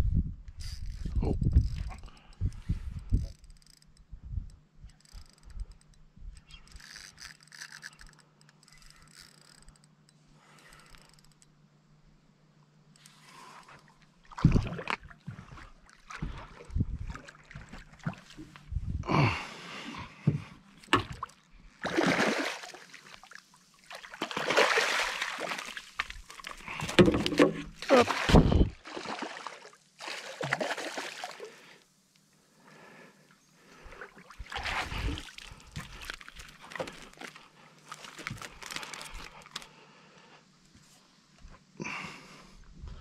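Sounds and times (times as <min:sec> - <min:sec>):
fishing reel whirring and ticking: 0:00.6 - 0:11.6
fish thrashing and splashing: 0:21.0 - 0:23.2, 0:23.9 - 0:31.4.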